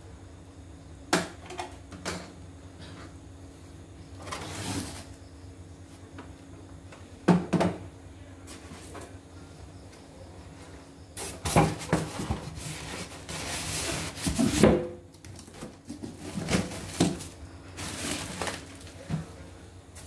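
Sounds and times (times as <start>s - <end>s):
knocks on wooden workbench: 7.3s - 7.8s.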